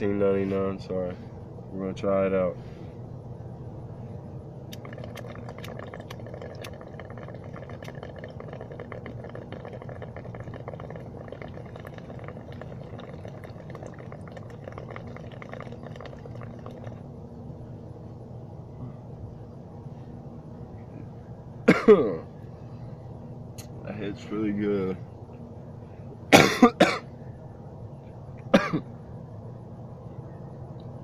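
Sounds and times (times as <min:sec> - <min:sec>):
low hum: 0:00.0 - 0:31.0
water bubbling in a bong: 0:04.7 - 0:17.0.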